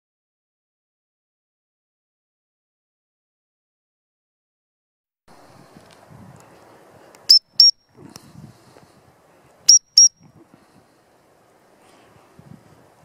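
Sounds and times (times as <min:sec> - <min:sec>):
shrill whistle blasts: 0:07.3 - 0:07.8, 0:09.7 - 0:10.1.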